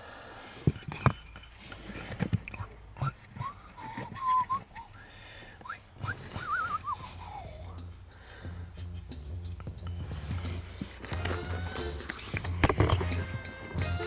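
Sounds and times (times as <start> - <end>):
person whistling: 3.0 - 7.9.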